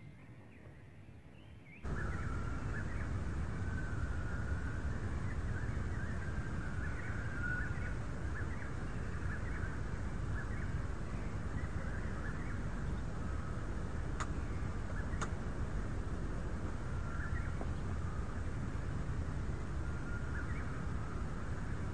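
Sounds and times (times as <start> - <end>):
faint bird chirps: 0.0 - 15.4, 16.8 - 21.9
wind buffeting microphone: 1.8 - 21.9
sharp clicks: 14.2 - 14.4, 15.2 - 15.4.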